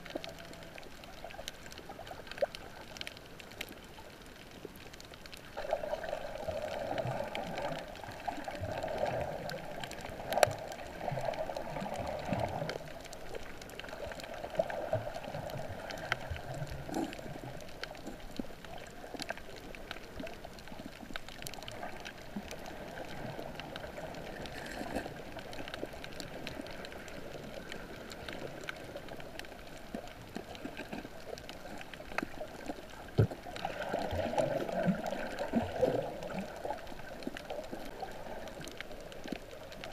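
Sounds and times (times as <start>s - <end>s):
faint clicks: 0.0s - 39.9s
muffled underwater water sloshing: 0.0s - 39.9s.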